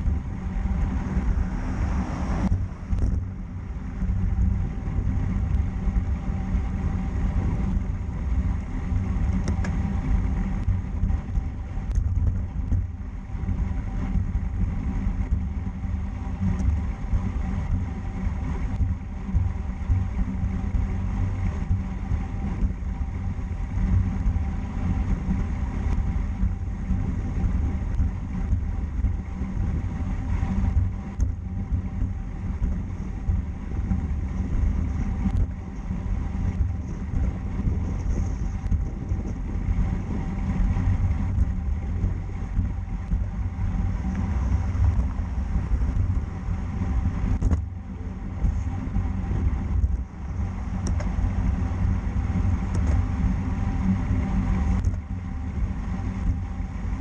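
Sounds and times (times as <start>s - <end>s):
road and tyre noise: 0.0s - 57.0s
wind buffeting microphone: 0.0s - 57.0s.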